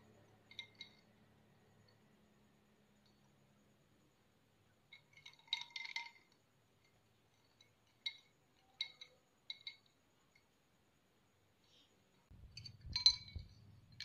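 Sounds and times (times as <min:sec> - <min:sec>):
drinking glass clinking: 0:12.6 - 0:14.0.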